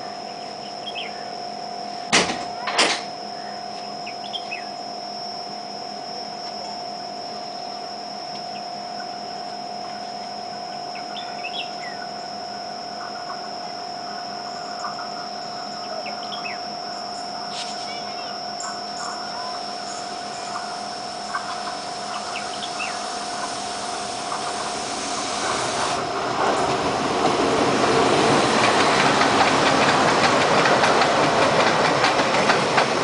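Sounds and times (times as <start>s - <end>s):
mechanical hum with high whine: 0.0s - 28.2s.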